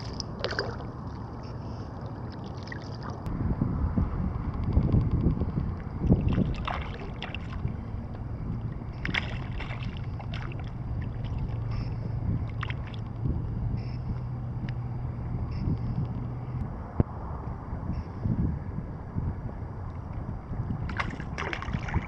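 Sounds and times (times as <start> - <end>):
water lapping against boat: 0.0 - 3.3, 5.8 - 13.4, 20.8 - 22.0
low hum: 0.0 - 22.0
wind: 0.0 - 22.0.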